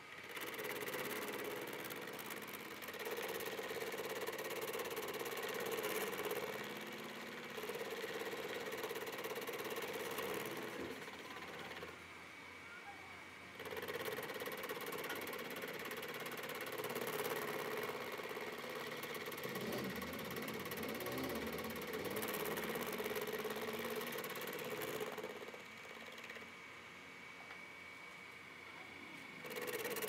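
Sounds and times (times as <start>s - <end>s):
milling machine hum: 0.0s - 30.0s.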